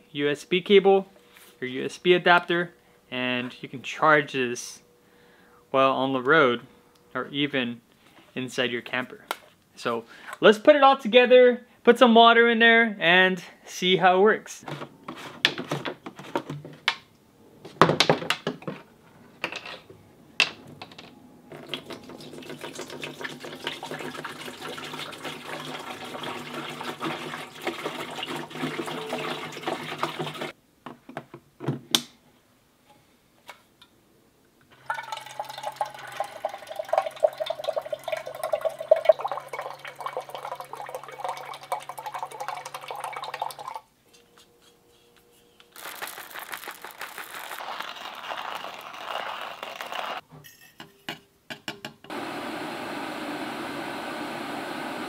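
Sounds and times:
water pouring into jug: 21.6 - 30.5, 34.8 - 43.8
running water stream: 21.7 - 30.5
electric pump hum: 52.1 - 55.0.

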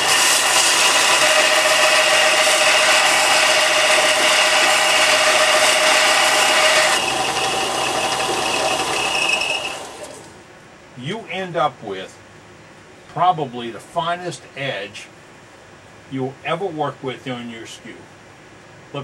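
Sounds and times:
steel grinding on abrasive belt: 0.0 - 10.2
belt sander running: 0.0 - 10.3.

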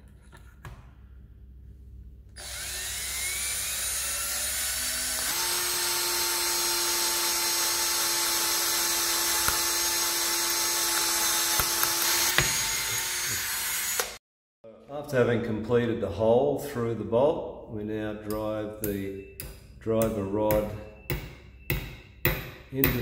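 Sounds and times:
cordless drill motor whine: 2.4 - 14.2.

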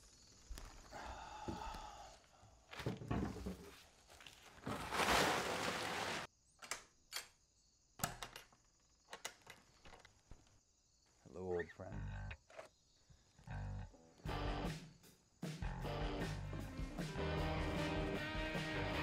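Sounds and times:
plastic tarp rustling: 2.8 - 6.3.

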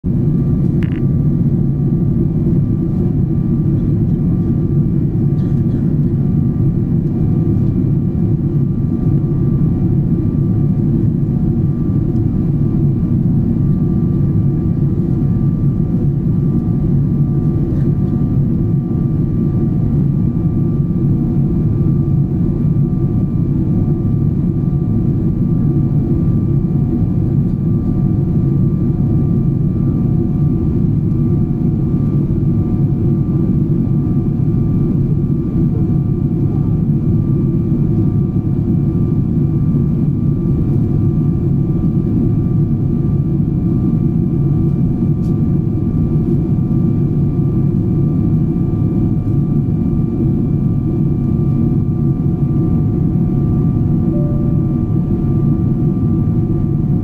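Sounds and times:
jet engine cabin rumble: 0.1 - 57.0
faint whining tones: 53.5 - 56.8.

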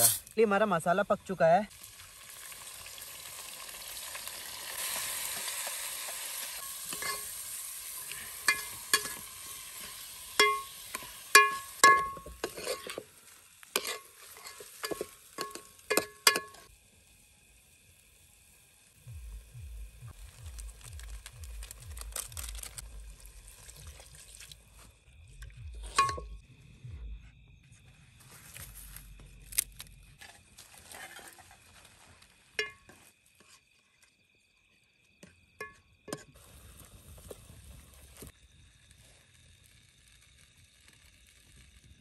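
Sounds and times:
food sizzling in a pot: 0.0 - 19.5, 20.1 - 24.9, 30.2 - 33.6, 35.6 - 42.0
spoon knocking against pot: 10.4 - 10.7, 11.4 - 12.4, 14.9 - 16.7.

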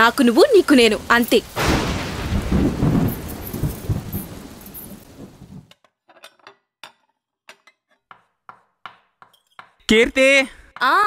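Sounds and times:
rain: 0.0 - 5.7
thunder rumble: 0.0 - 5.7.

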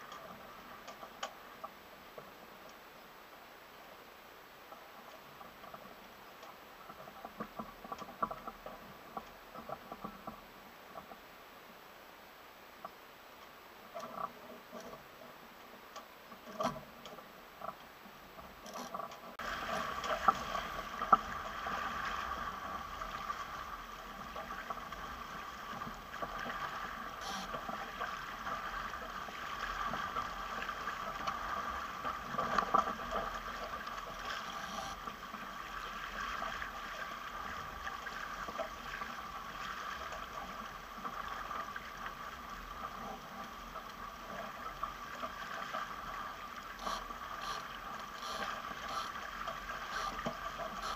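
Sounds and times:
water rushing along boat hull: 13.6 - 50.9.

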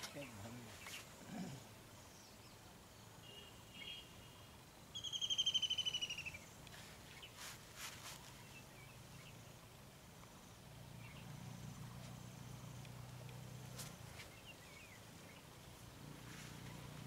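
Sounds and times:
faint bird chirps: 0.1 - 7.5, 10.4 - 17.0
bird trilling: 5.0 - 6.4.

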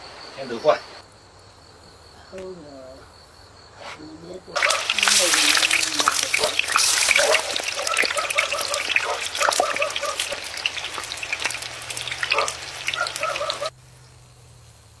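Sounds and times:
tofu sizzling in hot oil: 4.6 - 13.7.

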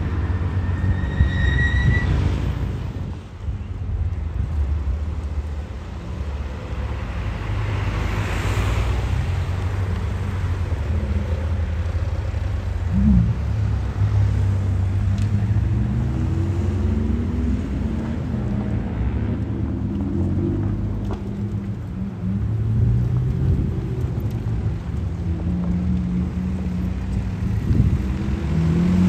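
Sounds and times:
sports cars driving past: 4.4 - 29.0
car accelerating away: 27.4 - 29.0.

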